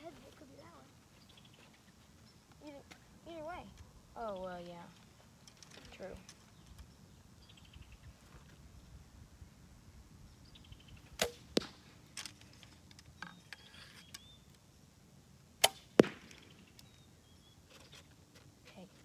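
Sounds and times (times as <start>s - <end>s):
arrow striking target: 11.1s - 12.0s, 15.6s - 16.7s.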